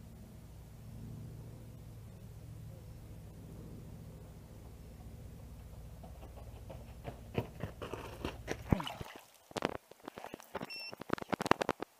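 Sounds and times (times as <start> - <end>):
footsteps crunching on gravel: 6.0 - 8.7.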